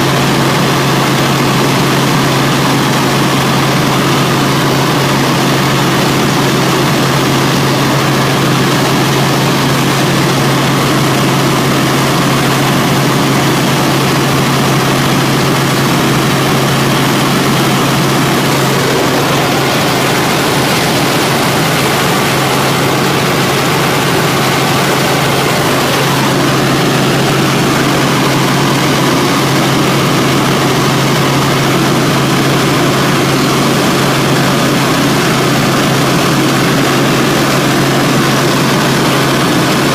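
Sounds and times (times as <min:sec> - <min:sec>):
helicopter engine and rotor noise: 0:00.0 - 0:39.9
low hum: 0:11.1 - 0:35.8.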